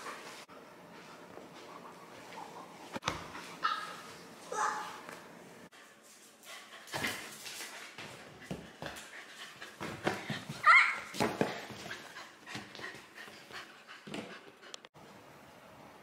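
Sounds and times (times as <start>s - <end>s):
dog panting: 11.6s - 14.9s.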